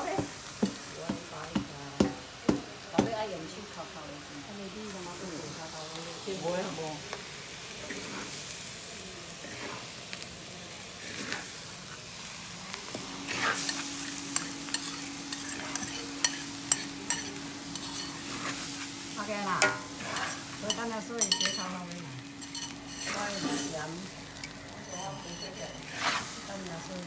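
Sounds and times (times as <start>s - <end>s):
food sizzling: 0.0s - 27.0s
metal spatula scraping wok: 7.8s - 8.5s, 9.4s - 10.0s, 11.0s - 11.6s, 13.2s - 26.6s
spatula clinking against pan: 14.4s - 18.1s, 19.6s - 21.7s, 22.4s - 23.8s.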